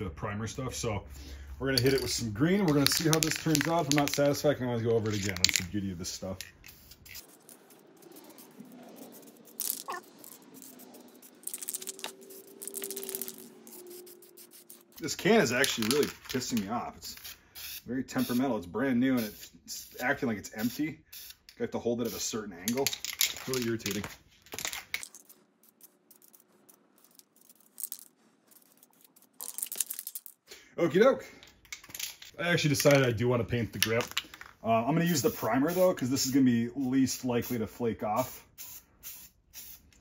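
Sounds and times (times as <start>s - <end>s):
spray can hissing and sputtering: 1.9s - 4.4s, 5.0s - 18.5s, 19.1s - 27.9s, 34.9s - 40.0s.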